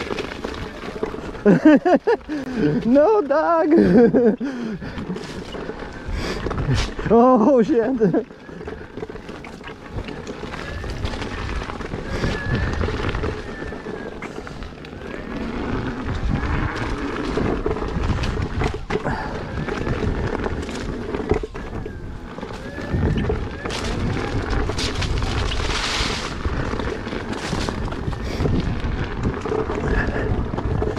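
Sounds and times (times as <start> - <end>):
electric unicycle rumble: 0.0 - 30.9
wind buffeting microphone: 9.9 - 30.9.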